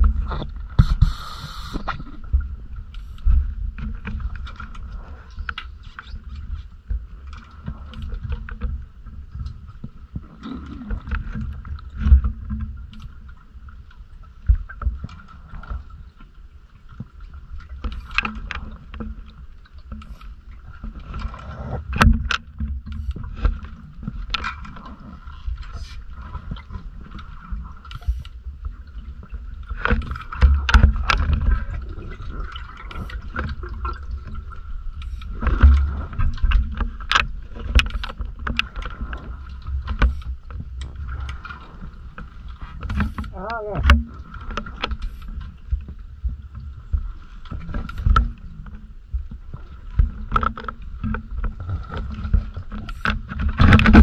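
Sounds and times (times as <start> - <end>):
low underwater rumble: 0.0 - 54.0
short noisy bursts: 0.8 - 1.8.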